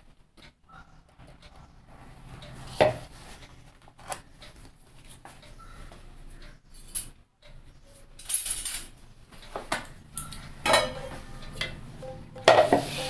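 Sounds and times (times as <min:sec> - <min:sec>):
steel kitchenware knocking and clinking: 0:10.2 - 0:13.0
metal scrape: 0:10.7 - 0:13.0.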